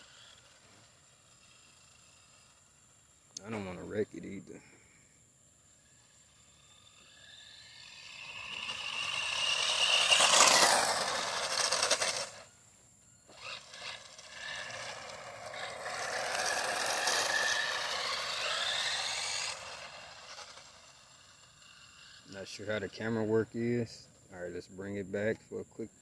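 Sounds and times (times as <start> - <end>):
electric motor whine: 0.0 - 4.0, 5.5 - 22.8
tyres rushing on concrete: 8.4 - 12.4, 13.6 - 20.7.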